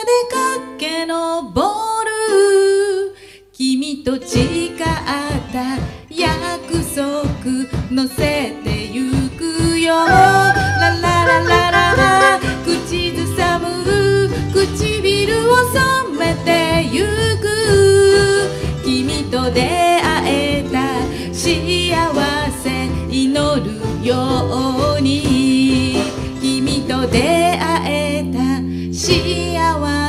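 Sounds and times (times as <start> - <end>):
sliding wavering erhu melody: 10.0 - 13.2
small band playing: 10.0 - 15.0.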